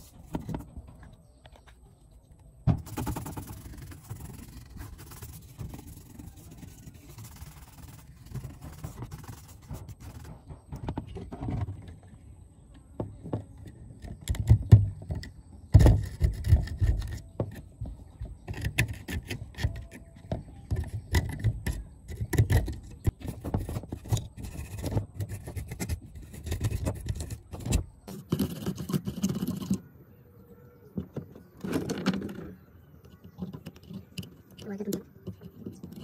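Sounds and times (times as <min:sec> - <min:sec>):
brush scrubbing: 0:02.8 - 0:10.6.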